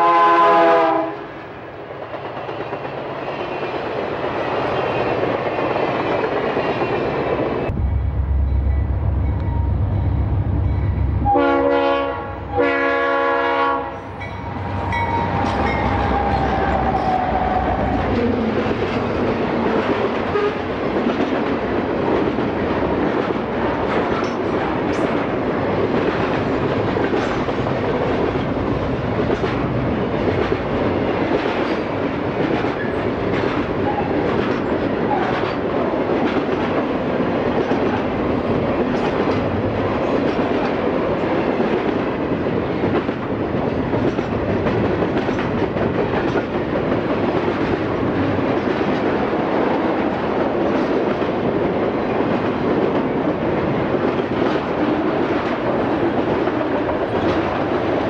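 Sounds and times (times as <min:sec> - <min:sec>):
locomotive air horn: 0:00.0 - 0:01.3, 0:11.2 - 0:14.1, 0:20.3 - 0:20.6
train wheels rolling: 0:00.8 - 0:58.0
locomotive engines rumbling: 0:01.4 - 0:22.5
wheels clicking over rail joints: 0:17.9 - 0:49.2.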